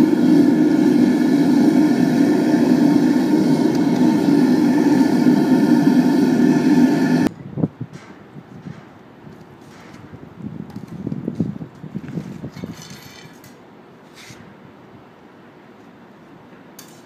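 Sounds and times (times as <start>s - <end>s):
gas burner roaring: 0.0s - 7.3s.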